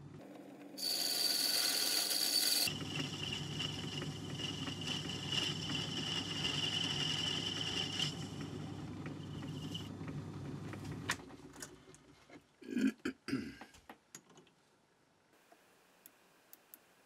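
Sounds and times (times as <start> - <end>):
lathe whining: 0.8 - 10.0.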